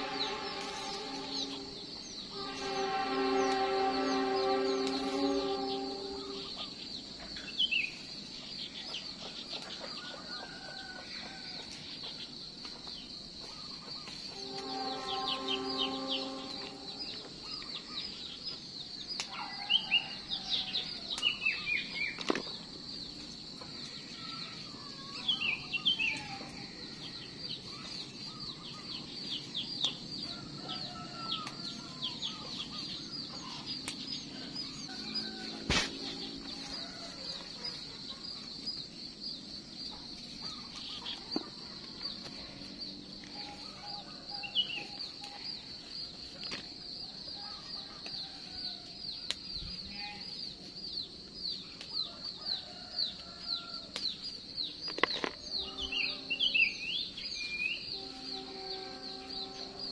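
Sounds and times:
steady high buzz: 0.0 - 6.9
small birds chirping: 0.0 - 19.5, 21.1 - 59.9.

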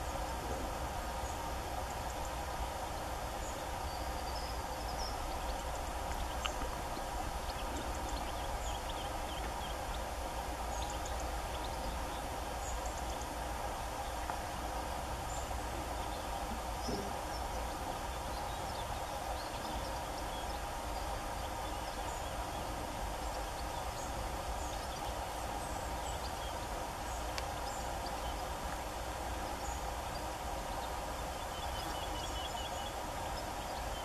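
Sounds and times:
hum and hiss: 0.0 - 34.0
faint bird chirps: 14.0 - 28.7, 29.4 - 34.0.

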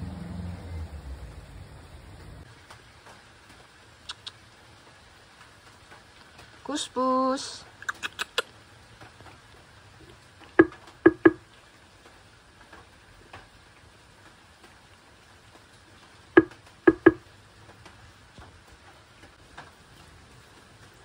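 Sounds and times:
sharp taps: 10.6 - 11.4, 16.4 - 17.2.

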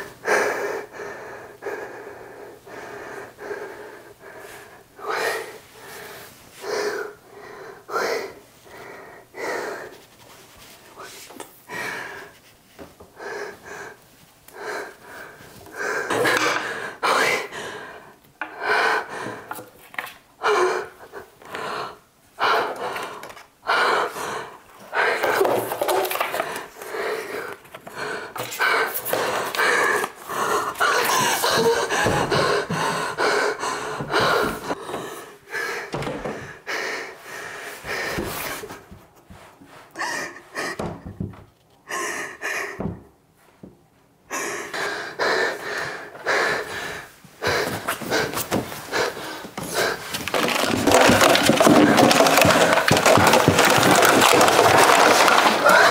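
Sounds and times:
woman breathing hard and gasping: 11.0 - 12.4, 13.2 - 19.7, 20.4 - 38.8, 39.9 - 43.1, 44.3 - 55.9.

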